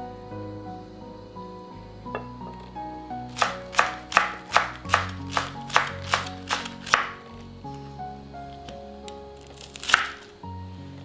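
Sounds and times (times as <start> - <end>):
background music: 0.0 - 11.0
knife chopping on wooden board: 3.4 - 7.1.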